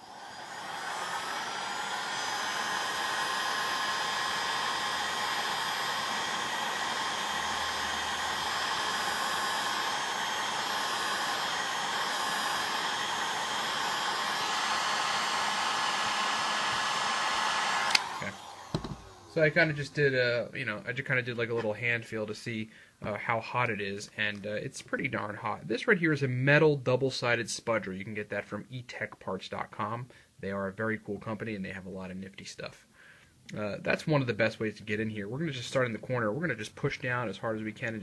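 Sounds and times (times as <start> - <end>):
heat gun blowing air with whine: 0.0 - 25.5, 33.5 - 38.0.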